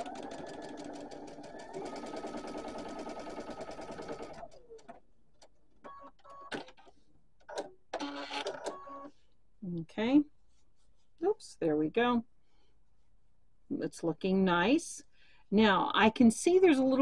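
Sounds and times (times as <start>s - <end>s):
sewing machine stitching: 0.0s - 5.0s.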